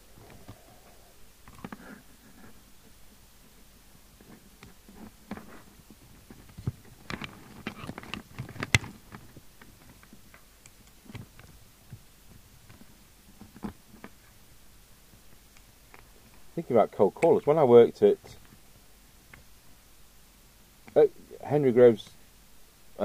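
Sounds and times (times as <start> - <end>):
hands handling cables and plastic: 4.2 - 14.4.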